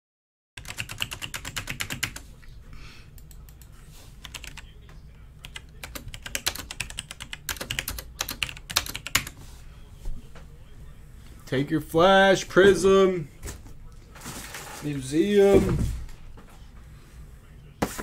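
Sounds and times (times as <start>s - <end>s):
computer keyboard typing: 0.6s - 2.2s, 3.2s - 4.7s, 5.4s - 9.4s.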